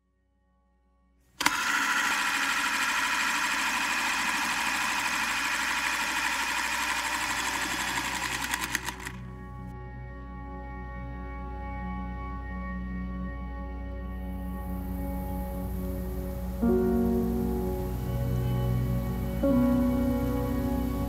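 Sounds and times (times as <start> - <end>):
ambient music tone: 9.2 - 21.0.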